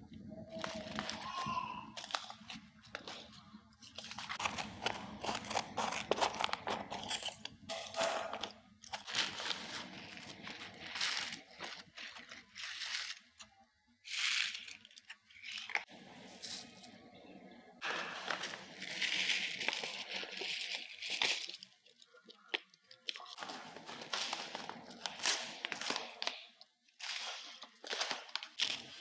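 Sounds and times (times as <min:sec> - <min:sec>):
seed packets crinkling: 0:00.4 - 0:07.6, 0:08.3 - 0:17.0, 0:17.8 - 0:29.0
seeds spilling: 0:15.6 - 0:16.9, 0:17.8 - 0:20.8.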